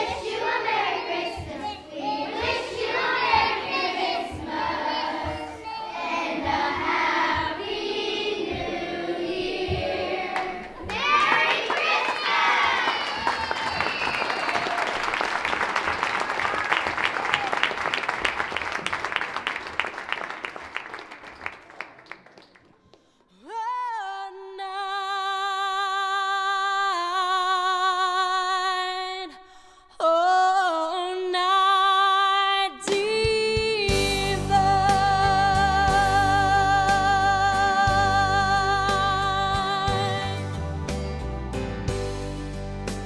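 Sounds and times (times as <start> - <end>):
applause: 10.9 - 23.2
person singing with vibrato: 23.4 - 40.6.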